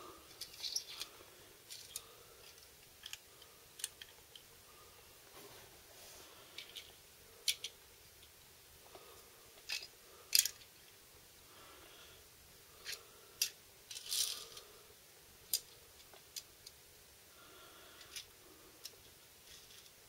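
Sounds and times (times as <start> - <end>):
toy cars clicking on floor: 0.3 - 4.4, 6.6 - 7.8, 9.6 - 10.7, 12.8 - 14.7, 15.5 - 16.8, 18.0 - 20.0.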